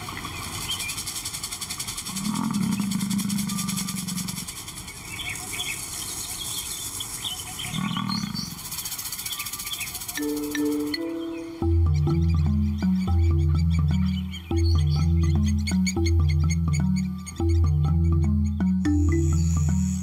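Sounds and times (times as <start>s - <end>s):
lion calling: 2.0s - 4.6s, 7.6s - 8.8s, 10.2s - 20.0s.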